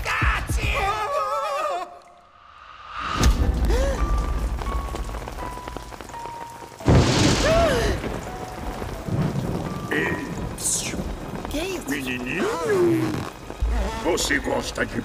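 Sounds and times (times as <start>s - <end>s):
thunderclaps: 3.1s - 15.0s
rain falling: 3.2s - 15.0s
soft background music: 3.3s - 15.0s.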